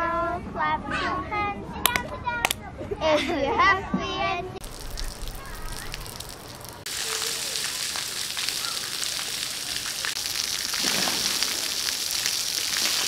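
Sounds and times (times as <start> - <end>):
fountain jets spraying water: 4.6 - 13.0.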